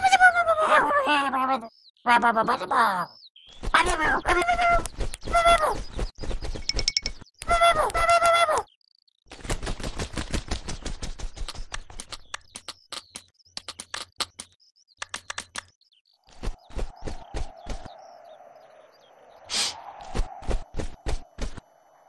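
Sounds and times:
cartoon pecking clicks: 6.7s - 8.7s, 11.4s - 15.8s.

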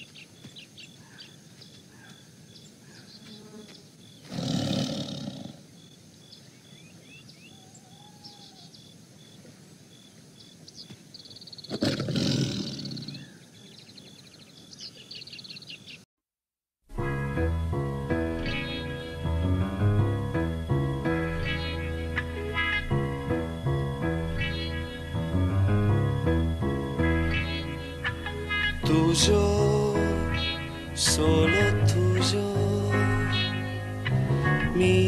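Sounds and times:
birds chirping: 0.0s - 16.1s, 18.1s - 35.0s
tiger roaring: 4.2s - 5.6s, 11.7s - 13.3s.

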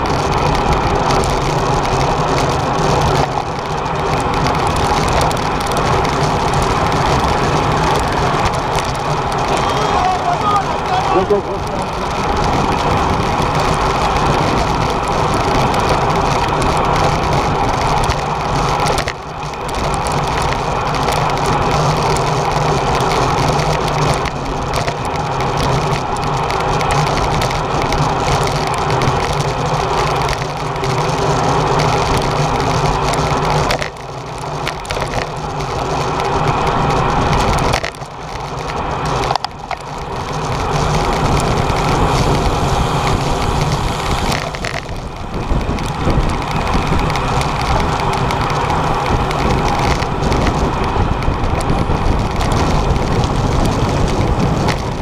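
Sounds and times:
wind rush: 0.0s - 19.1s, 34.9s - 55.0s
bicycle road noise: 0.0s - 55.0s.

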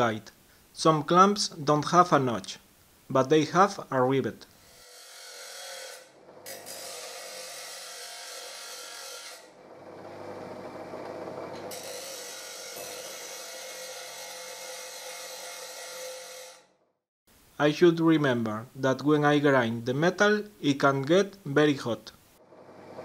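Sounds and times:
grinder wheel grinding steel: 4.6s - 16.7s
grinder motor hum: 9.6s - 11.8s.

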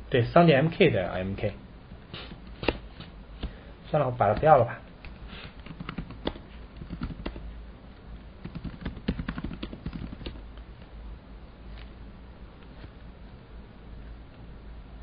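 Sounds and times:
faint steady hum: 0.0s - 15.0s
keyboard typing: 5.0s - 7.4s, 8.4s - 10.4s.

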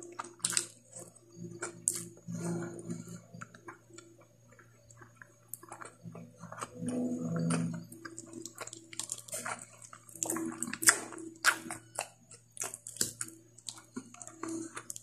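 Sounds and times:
wet chewing: 0.0s - 15.0s.

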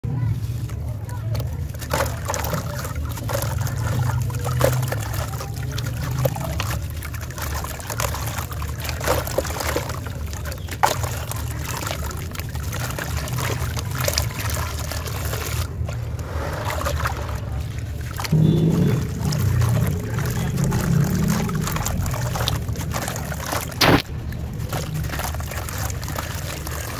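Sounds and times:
sand and chunks splashing into water: 0.6s - 26.9s
low rumble: 15.6s - 26.9s
sharp cracks and crunches: 23.6s - 25.2s.

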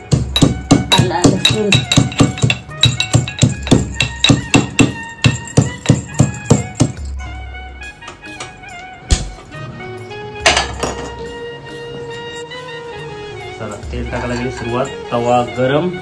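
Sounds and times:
pestle pounding in metal mortar: 0.0s - 7.1s.

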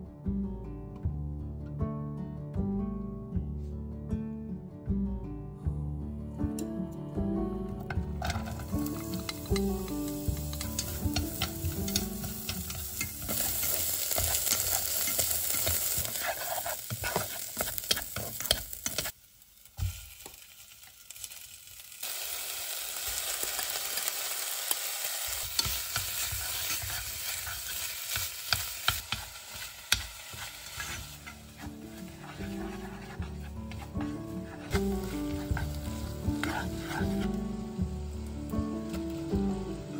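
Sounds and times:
spoon scraping and clicking on pan: 7.9s - 19.1s, 36.3s - 37.2s
onion sizzling in hot oil: 8.1s - 39.9s.

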